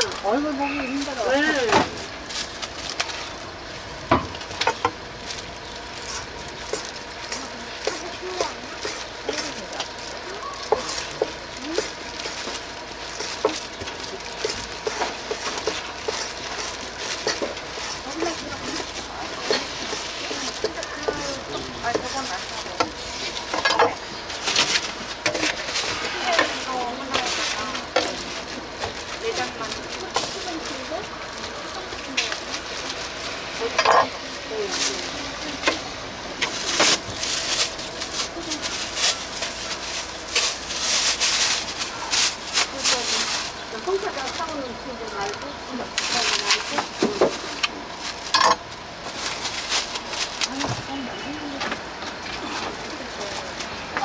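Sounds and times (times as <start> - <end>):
faint background voices: 5.9 - 54.0.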